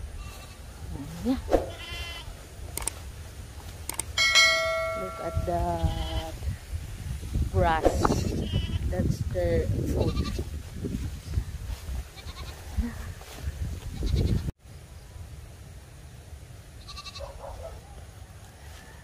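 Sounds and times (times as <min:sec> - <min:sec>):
person speaking: 0:00.9 - 0:01.6, 0:04.4 - 0:06.4, 0:07.5 - 0:10.2
goats bleating: 0:01.7 - 0:02.3, 0:12.2 - 0:12.7, 0:16.8 - 0:17.3.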